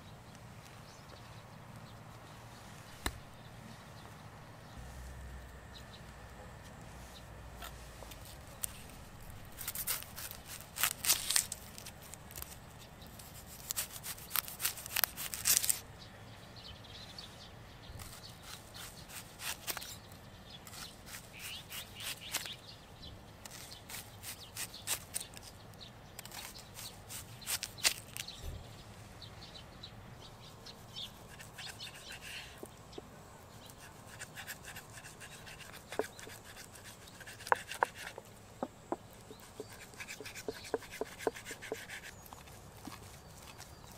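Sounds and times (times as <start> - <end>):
dry onion skin crackling: 7.6 - 15.9, 23.4 - 28.4, 33.6 - 43.9
knife cutting through onion: 9.6 - 12.6, 13.2 - 15.8, 31.0 - 32.7, 33.7 - 38.3, 39.3 - 42.2.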